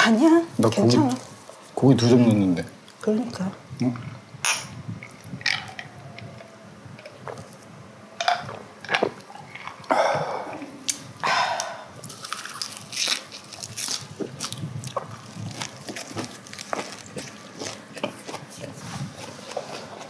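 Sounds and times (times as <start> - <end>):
crunching and chewing: 5.0 - 10.0, 10.9 - 20.0.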